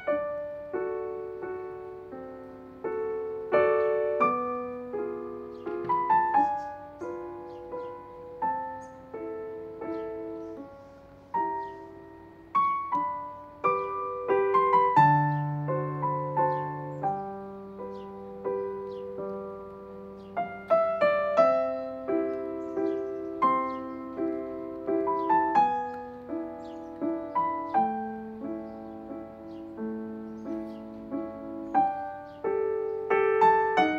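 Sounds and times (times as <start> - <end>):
piano music: 0.0 - 33.9.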